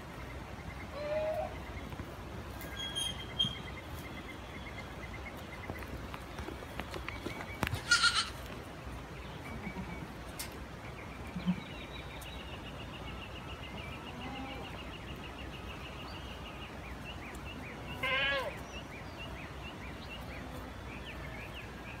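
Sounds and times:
goats bleating: 0:07.9 - 0:08.4.

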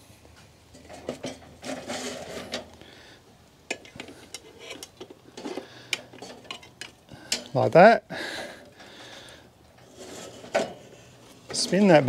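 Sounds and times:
metal clinks and scrapes: 0:00.7 - 0:02.8, 0:03.7 - 0:07.5, 0:09.8 - 0:11.9.

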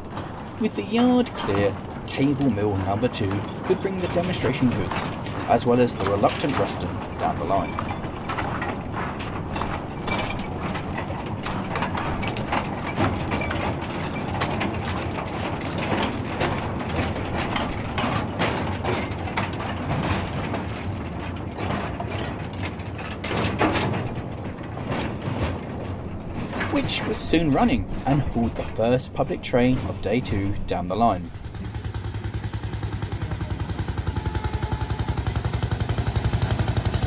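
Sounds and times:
diesel locomotive engine hum: 0:00.0 - 0:13.9, 0:23.8 - 0:37.0
wagons clanking and rattling: 0:00.0 - 0:37.0.

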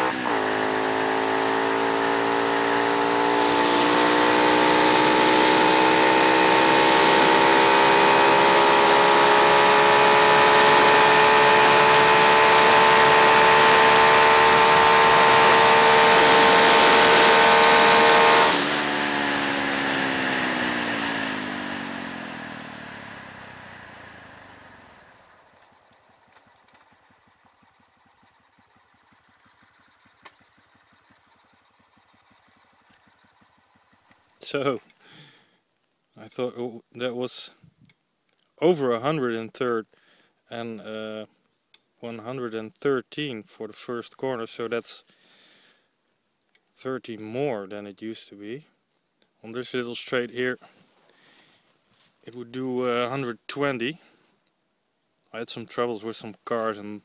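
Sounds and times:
motorcycle engine at full throttle: 0:00.0 - 0:34.5.

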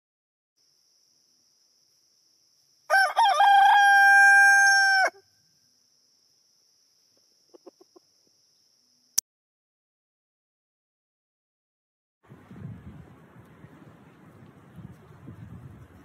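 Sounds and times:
rooster crowing: 0:02.9 - 0:05.3.

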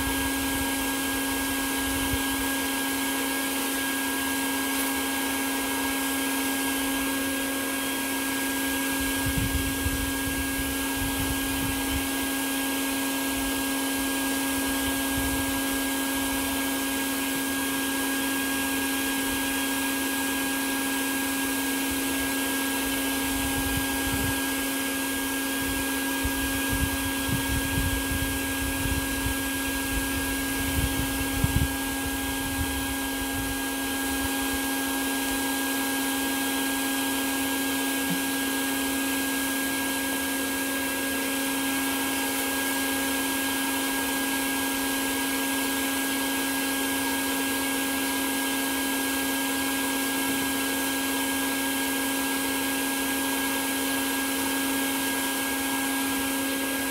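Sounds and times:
motor humming: 0:00.0 - 0:44.1.

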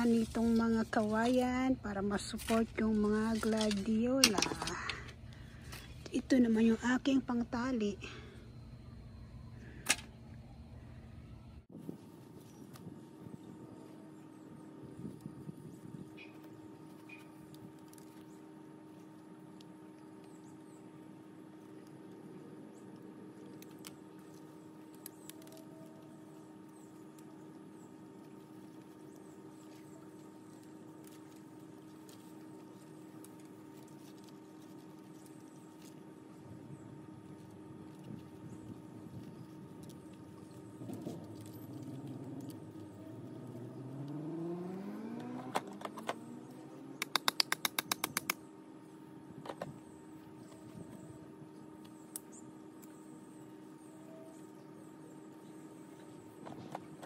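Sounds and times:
low hum: 0:00.0 - 0:57.0
engine accelerating: 0:39.8 - 0:48.4
light clicks of stakes: 0:47.0 - 0:48.4
faint bird chirps: 0:49.7 - 0:56.7.

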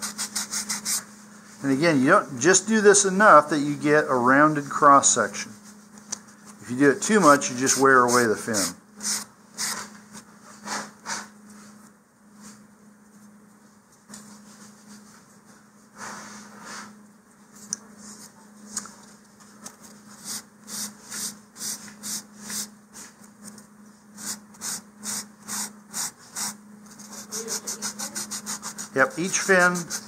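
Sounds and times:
sanding block rubbing wood: 0:24.2 - 0:30.0.

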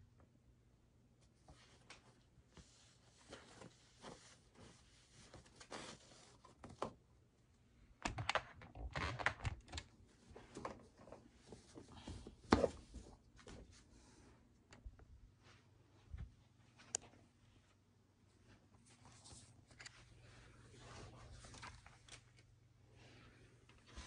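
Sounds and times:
fabric rustling: 0:01.4 - 0:06.6.

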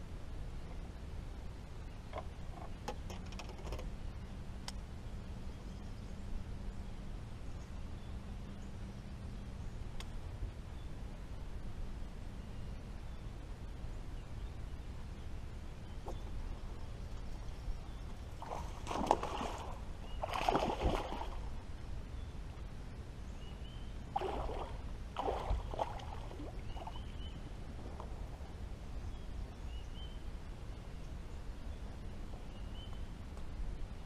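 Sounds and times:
fish splashing at water surface: 0:18.4 - 0:21.4, 0:24.2 - 0:26.6.

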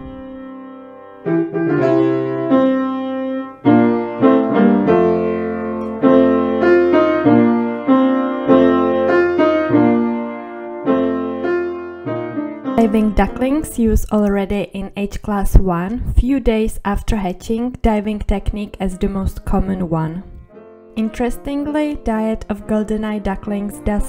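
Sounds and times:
slow piano melody: 0:00.0 - 0:13.9, 0:18.9 - 0:24.0.

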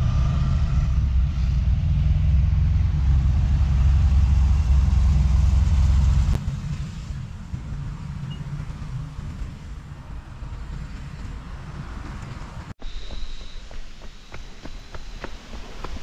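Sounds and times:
car engine running: 0:01.0 - 0:09.4.

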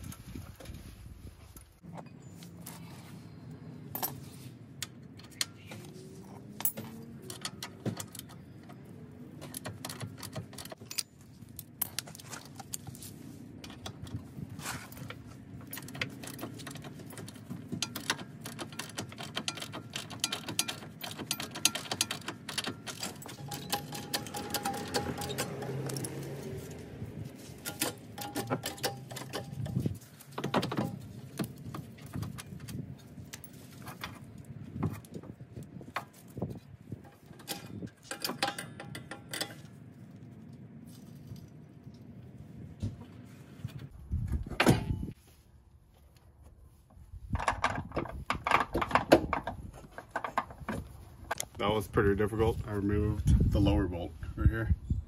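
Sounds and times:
metal tools clinking and rattling: 0:05.2 - 0:08.4, 0:09.4 - 0:12.9, 0:13.7 - 0:26.5, 0:27.4 - 0:32.6, 0:37.0 - 0:39.8.

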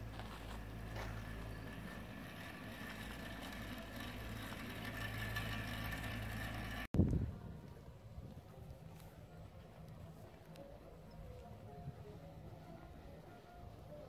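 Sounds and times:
motor humming: 0:00.0 - 0:06.9.

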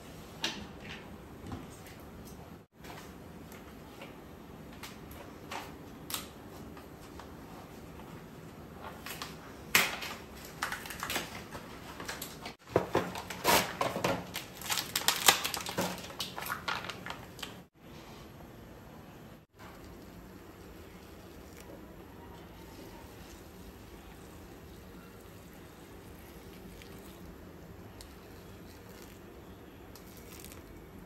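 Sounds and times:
packaging rustling and tearing: 0:10.5 - 0:17.7.

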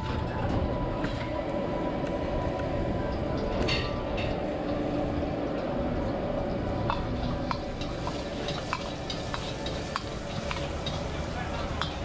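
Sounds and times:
food sizzling in hot oil: 0:06.9 - 0:12.0.

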